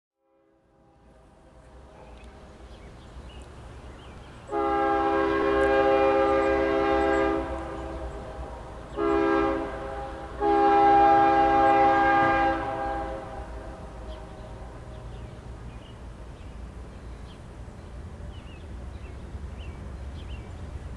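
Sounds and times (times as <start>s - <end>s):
freight train rumble: 0.3s - 20.9s
locomotive air horn chord: 4.5s - 14.4s.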